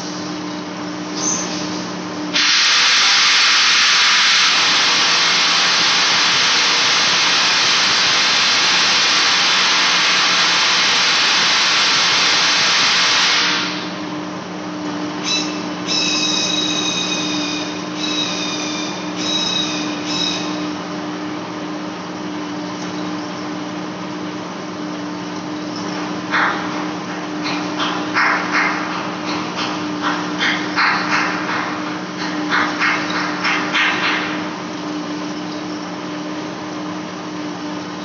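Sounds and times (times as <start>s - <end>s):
loud hiss: 1.6s - 14.0s
high squeal from cutting: 15.3s - 20.6s.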